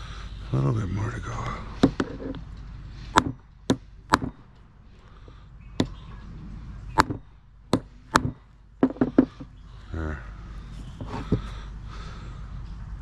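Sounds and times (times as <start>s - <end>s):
hammer knocks on metal: 7.0s - 9.4s.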